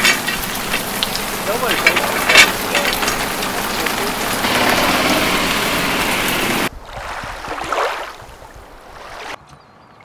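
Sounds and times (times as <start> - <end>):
rain falling on pavement: 0.0 - 6.7.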